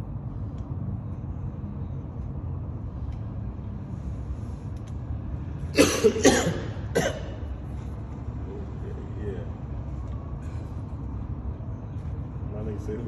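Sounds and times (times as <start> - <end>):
steady low rumble: 0.0 - 13.0
loud coughs: 5.7 - 7.5.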